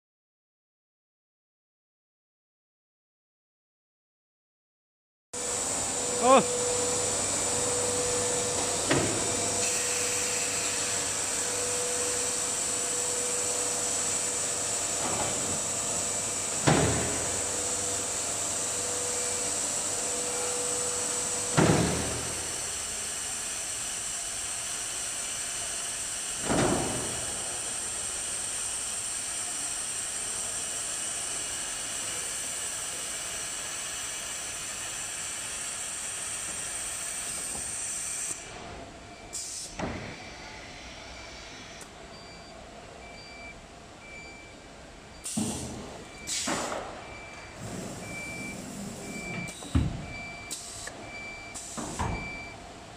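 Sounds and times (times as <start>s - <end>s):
machine hum and hiss: 5.4s - 52.9s
pneumatic bursts: 39.3s - 41.9s, 45.2s - 52.6s.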